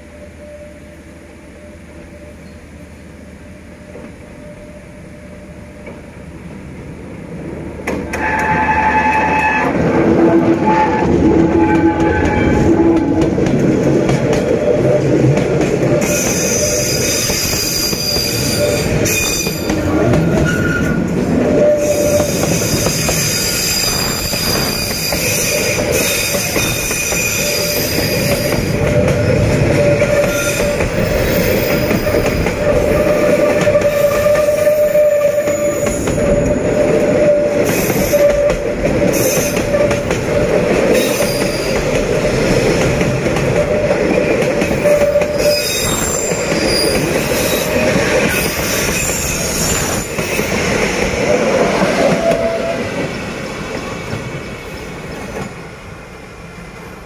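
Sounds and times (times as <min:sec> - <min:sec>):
train wheels squealing on rails: 0:00.0 - 0:06.3, 0:07.9 - 0:55.5
freight train rumbling past: 0:00.0 - 0:57.0.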